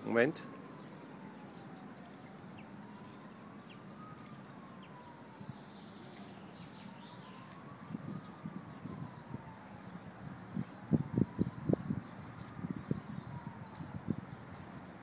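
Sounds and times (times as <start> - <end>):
bird chirps: 0.0 - 10.8
distant siren wailing: 0.0 - 15.0.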